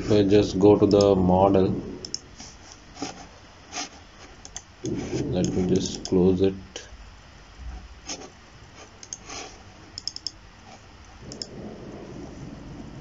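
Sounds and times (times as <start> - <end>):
computer mouse clicks: 2.0 - 2.8, 3.8 - 6.2, 8.1 - 11.6.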